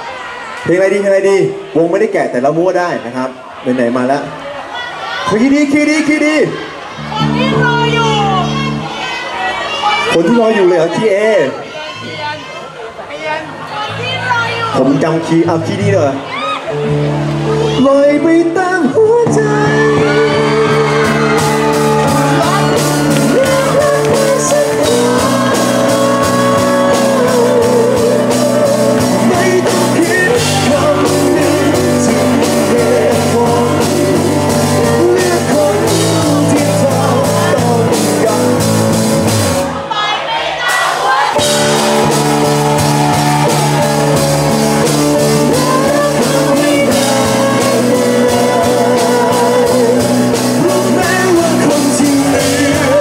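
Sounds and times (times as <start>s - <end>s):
electric guitar: 18.8s - 39.8s, 41.4s - 53.0s
men singing: 18.9s - 38.8s, 39.7s - 53.0s
drum kit: 19.3s - 53.0s.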